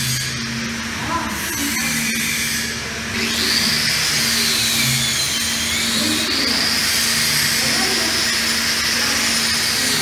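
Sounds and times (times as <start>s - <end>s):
welding arc hissing: 5.8s - 10.0s.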